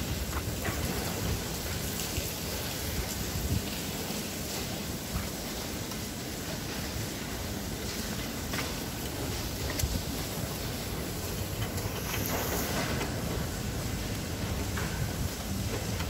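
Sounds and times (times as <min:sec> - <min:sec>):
steady rain: 0:00.0 - 0:16.0.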